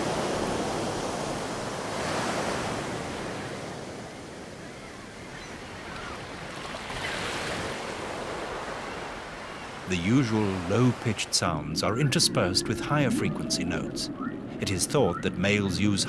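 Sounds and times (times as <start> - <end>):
ocean waves breaking: 5.8 - 16.0.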